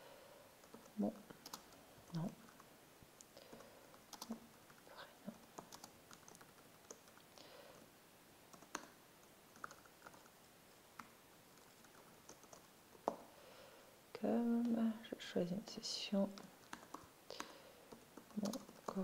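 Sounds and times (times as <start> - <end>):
typing on computer keyboard: 0.6 - 1.8, 3.5 - 7.2, 8.5 - 8.9, 9.6 - 10.3, 11.0 - 13.2, 16.3 - 19.0.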